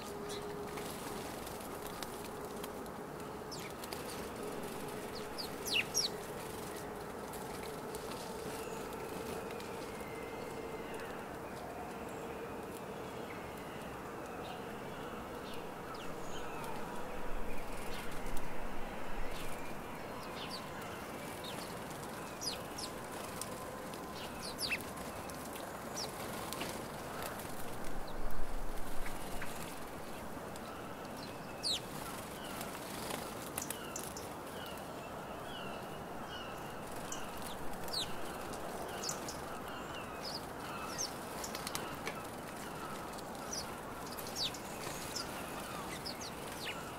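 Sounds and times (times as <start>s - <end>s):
wings flapping: 0.0s - 10.0s, 21.2s - 28.1s, 31.6s - 34.4s, 40.2s - 46.9s
steady background noise: 0.0s - 46.9s
sparrows chirping: 3.5s - 6.9s, 19.3s - 27.4s, 28.9s - 34.8s, 35.4s - 46.9s.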